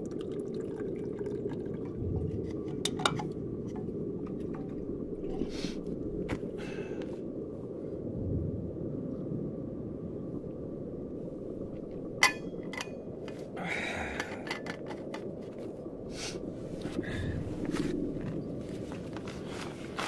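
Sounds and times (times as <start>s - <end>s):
low rumble: 0.8s - 19.8s
camping gear clinking and rustling: 12.2s - 15.8s, 16.8s - 20.0s.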